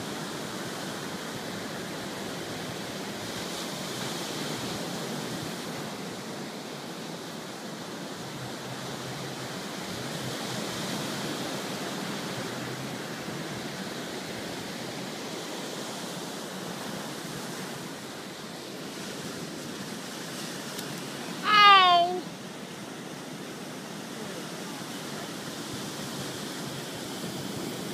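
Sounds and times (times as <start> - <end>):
ocean surf on beach: 0.0 - 27.9.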